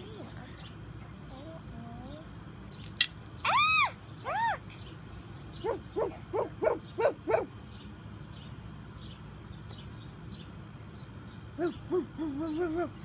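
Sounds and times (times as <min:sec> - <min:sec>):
dog barking: 0:05.6 - 0:07.5.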